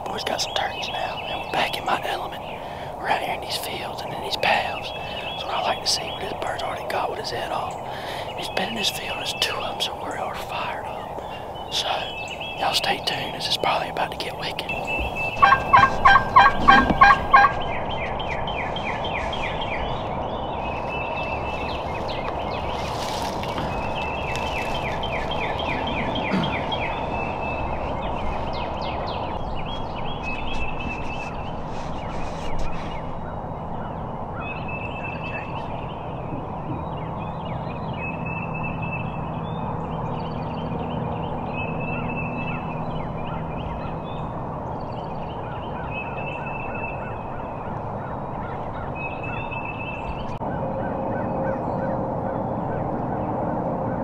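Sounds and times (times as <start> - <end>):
turkeys gobbling: 14.8 - 17.7.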